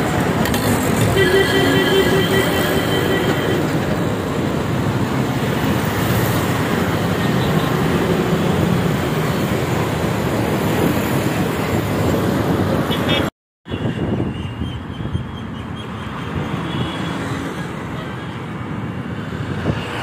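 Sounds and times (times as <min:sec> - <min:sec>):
bus passing close by: 0:00.0 - 0:13.3
road traffic roar: 0:00.0 - 0:20.0.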